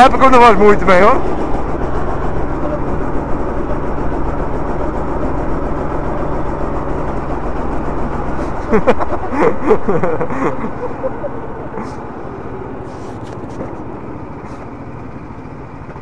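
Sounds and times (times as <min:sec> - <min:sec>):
go-kart engines: 0:00.0 - 0:16.0.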